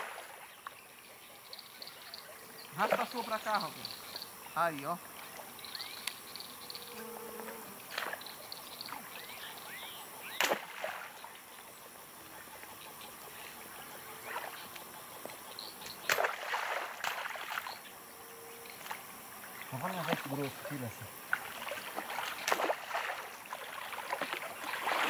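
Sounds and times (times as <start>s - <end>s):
water splashing: 0.0s - 0.5s, 1.5s - 6.6s, 7.4s - 9.2s, 10.3s - 11.4s, 16.0s - 17.8s, 18.8s - 25.0s
insects chirping: 0.0s - 25.0s.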